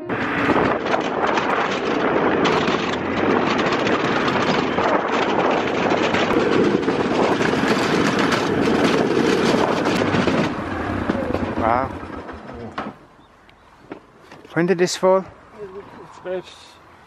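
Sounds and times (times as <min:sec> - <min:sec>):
quad bike engine: 0:00.0 - 0:13.0
rattling over bumps: 0:00.0 - 0:13.1.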